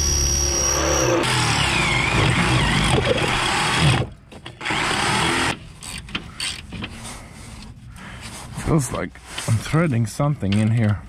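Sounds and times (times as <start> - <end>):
electric drill boring through metal: 0.0 - 6.6.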